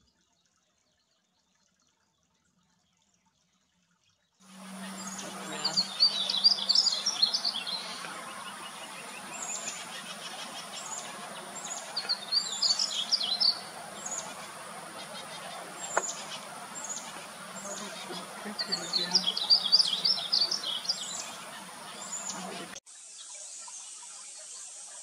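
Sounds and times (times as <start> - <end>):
bird warbling song: 4.5 - 24.0.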